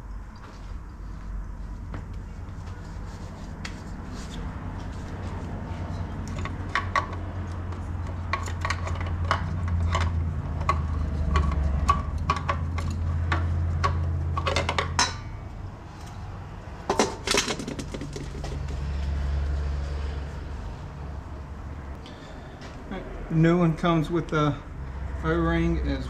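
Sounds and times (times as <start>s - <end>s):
metal clatter: 16.9s - 18.8s.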